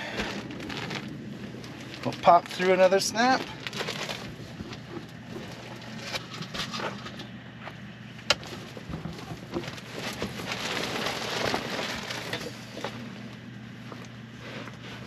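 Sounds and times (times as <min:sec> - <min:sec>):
quilt and plastic sheeting rustling: 0:00.1 - 0:06.1, 0:08.4 - 0:15.0.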